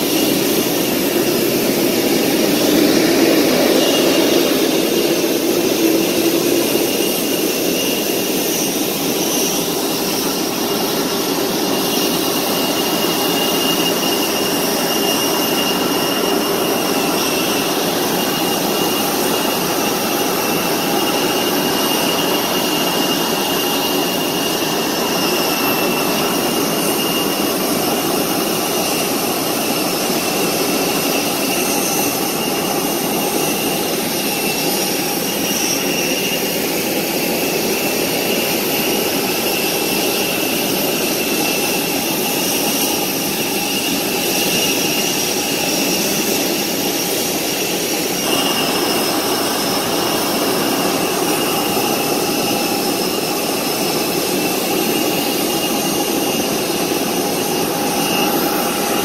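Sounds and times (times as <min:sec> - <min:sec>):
jet engine rush: 0:00.0 - 0:59.0
jet engine whine: 0:00.0 - 0:59.0.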